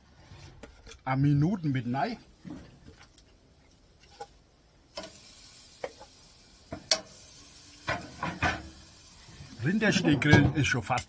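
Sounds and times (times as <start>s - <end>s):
meat sizzling: 4.9s - 10.2s
tongs clicking on grill grate: 6.9s - 7.1s.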